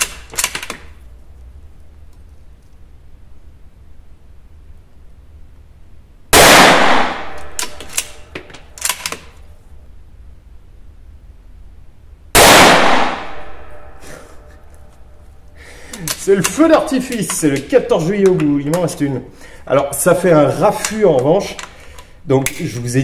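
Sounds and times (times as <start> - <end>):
rifle bolt clicks: 0.0 - 0.9, 7.3 - 9.4, 15.9 - 18.9, 20.8 - 22.6
rifle shots with echo: 6.3 - 8.2, 12.4 - 14.0.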